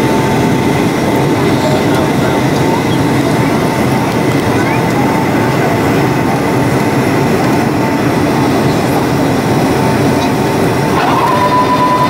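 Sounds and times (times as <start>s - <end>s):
jet engines rumbling: 0.0s - 12.0s.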